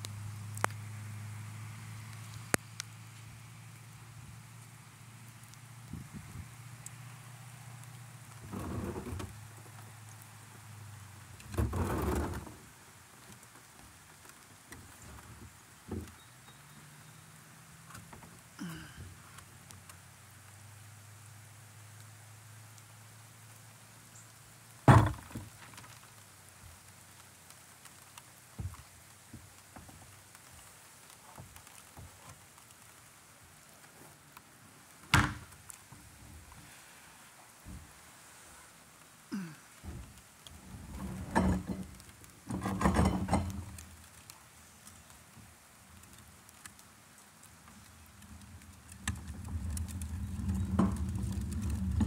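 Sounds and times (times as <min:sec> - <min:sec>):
raindrops ticking: 0:00.0 - 0:36.7, 0:37.5 - 0:52.0
light rain falling: 0:00.0 - 0:52.0
small knocks: 0:08.4 - 0:09.4, 0:24.8 - 0:26.0, 0:28.6 - 0:30.0, 0:39.4 - 0:44.3, 0:47.7 - 0:52.0.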